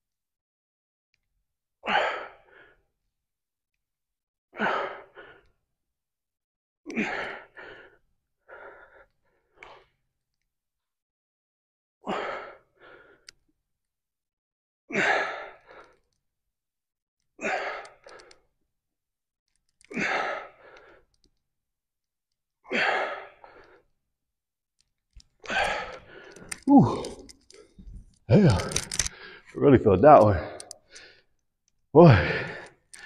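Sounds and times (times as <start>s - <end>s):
man breathing out forcefully: 25.5s - 27.3s, 32.0s - 33.0s.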